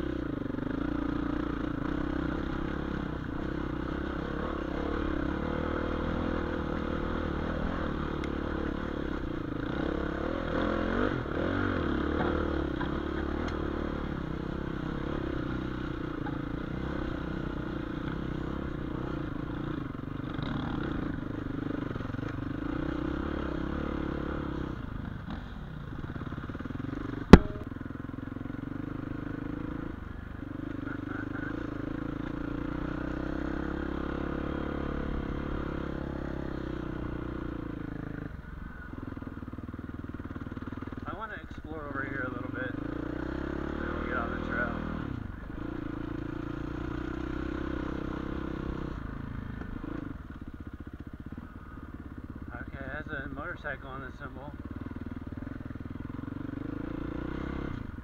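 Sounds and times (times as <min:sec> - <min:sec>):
dirt bike engine running: 0:00.0 - 0:58.0
sharp knock: 0:27.3 - 0:27.7.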